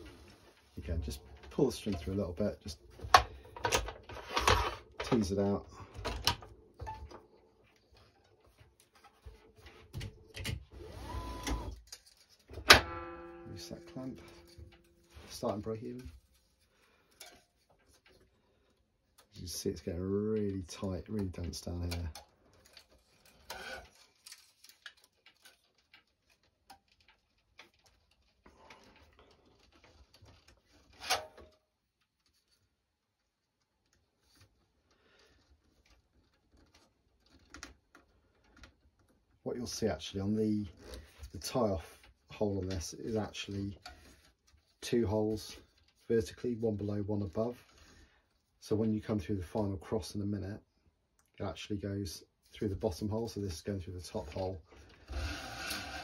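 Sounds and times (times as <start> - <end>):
string rasping through strings: 12.9 - 16.0.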